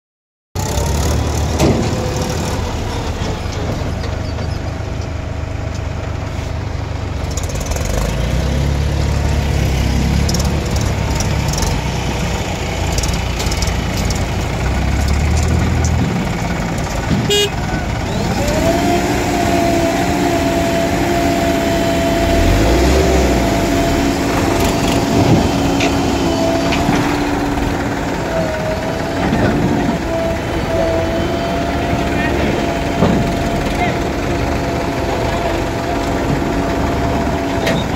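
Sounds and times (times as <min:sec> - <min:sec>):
diesel engines running: 0:00.6 - 0:37.9
steady high tone: 0:19.0 - 0:36.0.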